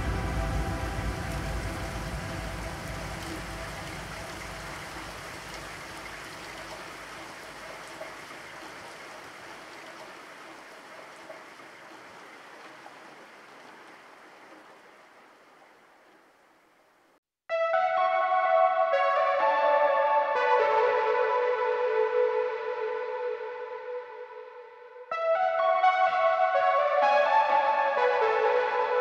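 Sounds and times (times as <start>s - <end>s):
noise like running water: 0.0s - 17.2s.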